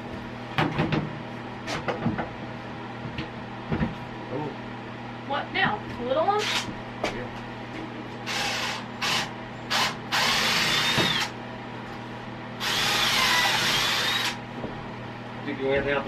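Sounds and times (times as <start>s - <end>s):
cordless drill driving screws: 6.4s - 6.7s, 8.3s - 11.3s, 12.6s - 14.4s.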